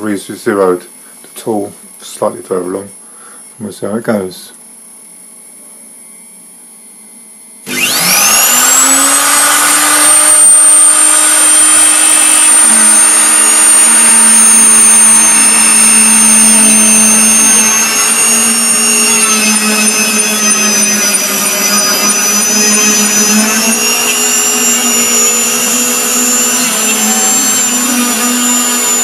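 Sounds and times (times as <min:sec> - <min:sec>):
electric router whining: 0:07.6 - 0:29.0
router bit cutting wood: 0:07.7 - 0:29.0.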